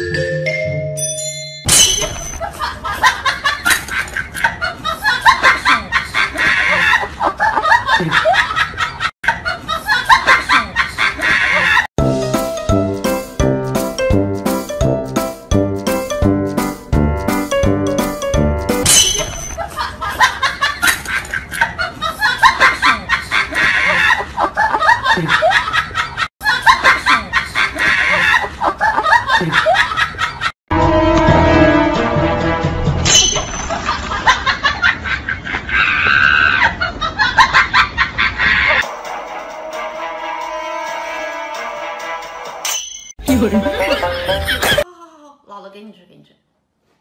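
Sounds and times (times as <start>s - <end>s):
people laughing: 2.4s - 11.9s, 19.6s - 30.6s, 33.8s - 38.9s, 43.3s - 44.9s.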